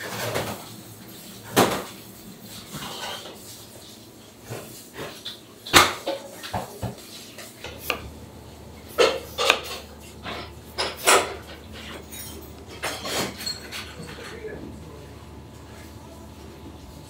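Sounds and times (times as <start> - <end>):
knife slicing apple: 6.9 - 11.2
knife tapping cutting board: 7.6 - 8.1, 9.0 - 9.8
low steady hum: 7.6 - 17.0
utensils knocking and clinking: 8.9 - 14.6.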